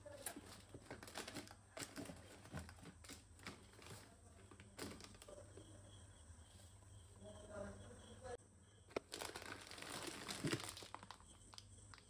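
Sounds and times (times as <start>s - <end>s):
snack packets rustling: 0.1s - 5.4s, 8.9s - 12.0s.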